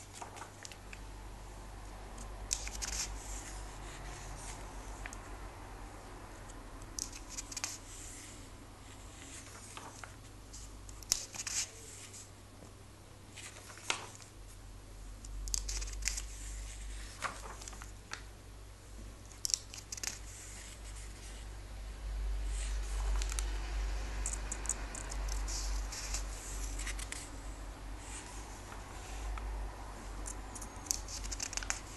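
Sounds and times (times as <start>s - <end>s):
comic book pages turning: 0.0s - 0.9s, 2.5s - 4.6s, 7.0s - 8.3s, 9.2s - 12.3s, 13.3s - 14.3s, 15.5s - 18.2s, 19.3s - 21.4s, 22.5s - 23.5s, 24.3s - 27.3s, 30.8s - 31.9s.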